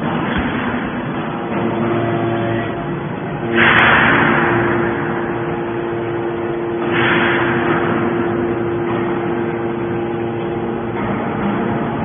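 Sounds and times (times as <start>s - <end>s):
hydraulic baler humming: 0.0s - 12.0s.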